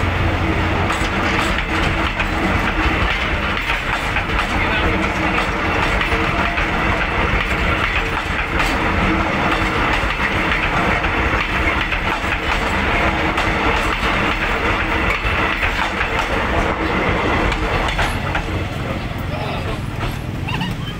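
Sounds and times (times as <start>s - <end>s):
train wheels rumbling on rails: 0.0s - 20.9s
wheels clicking over rail joints: 0.0s - 20.9s.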